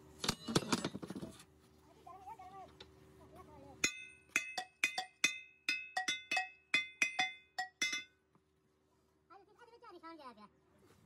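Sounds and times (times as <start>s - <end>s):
metal struck ringing: 3.8s - 8.1s.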